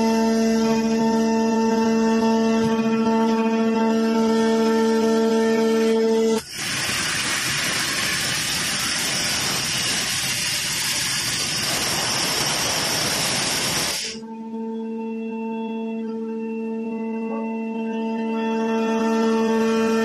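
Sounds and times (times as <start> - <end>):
music drone: 0.0 - 9.6, 11.7 - 20.0
rock drill running: 6.4 - 14.2.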